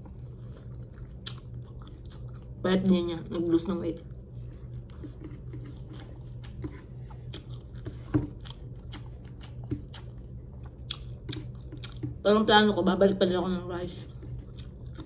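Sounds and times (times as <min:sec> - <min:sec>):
person chewing with mouth clicks: 0:00.0 - 0:02.6, 0:04.0 - 0:12.2, 0:14.0 - 0:15.0.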